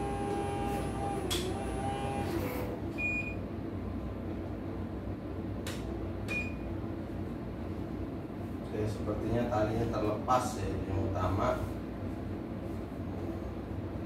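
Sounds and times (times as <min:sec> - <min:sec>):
embroidery machine whirring: 0:00.0 - 0:02.8.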